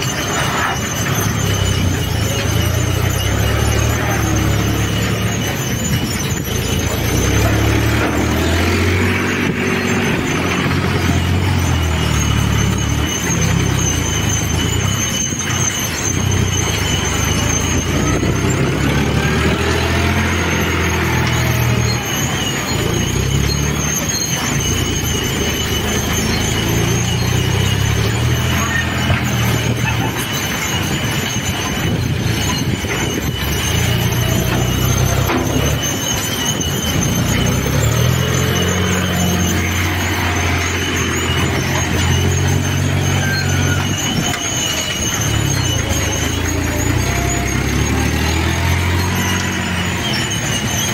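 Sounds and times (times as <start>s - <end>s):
high-pitched squeal: 0.0s - 50.9s
tractor diesel engine running: 0.0s - 50.9s.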